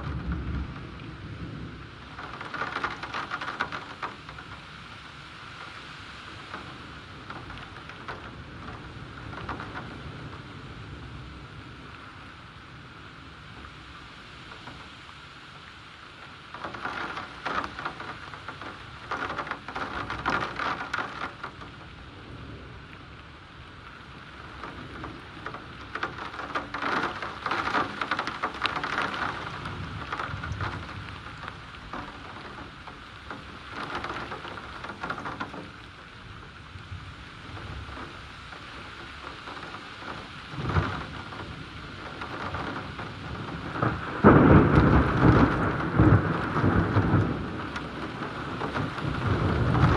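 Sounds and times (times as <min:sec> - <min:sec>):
heavy rain pouring: 0:00.0 - 0:49.9
thunder rumbling: 0:40.6 - 0:49.9.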